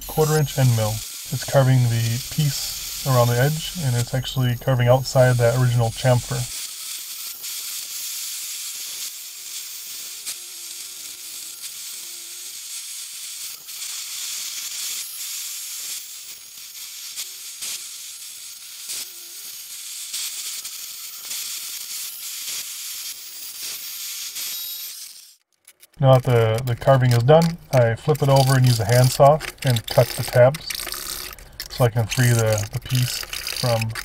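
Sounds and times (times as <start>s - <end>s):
router cutting wood: 0.0s - 6.6s, 26.0s - 34.0s.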